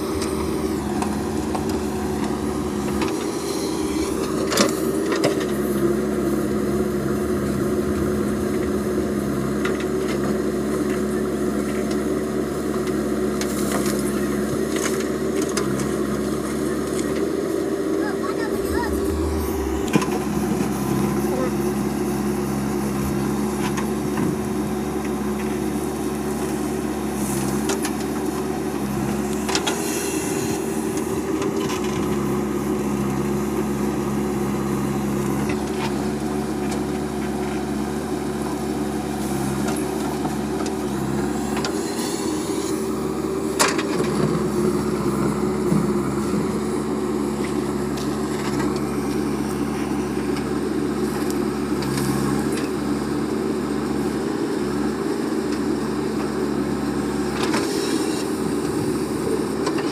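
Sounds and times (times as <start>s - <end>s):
diesel engine running under load: 0.0s - 59.9s.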